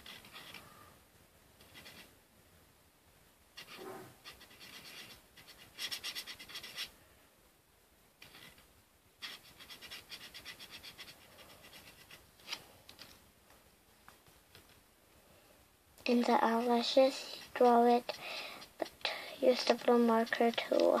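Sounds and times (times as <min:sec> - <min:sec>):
marker scribbling on paper: 0:00.0 - 0:00.6, 0:01.6 - 0:02.1, 0:03.6 - 0:06.9, 0:08.2 - 0:08.6, 0:09.2 - 0:12.6, 0:16.5 - 0:21.0.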